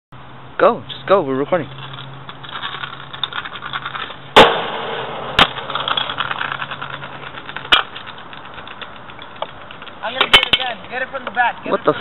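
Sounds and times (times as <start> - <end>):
scooter wheels rolling on concrete: 1.4 - 12.0
sharp knocks: 4.4 - 10.6.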